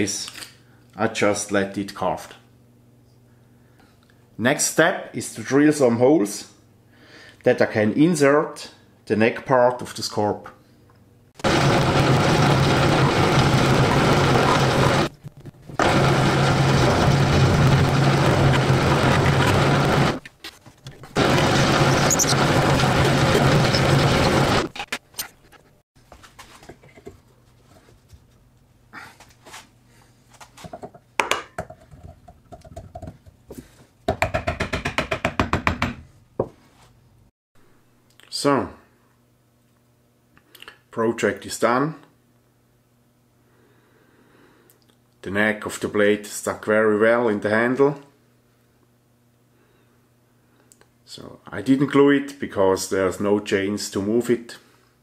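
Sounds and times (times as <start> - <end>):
drill press boring into wood: 21.2 - 24.7.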